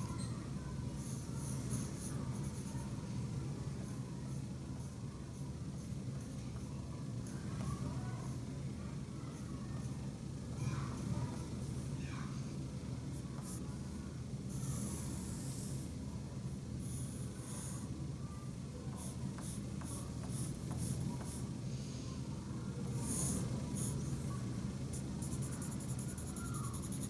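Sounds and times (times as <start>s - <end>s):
steady low hum: 8.1s - 27.0s
pencil scratching on paper: 19.0s - 21.4s, 25.0s - 27.0s.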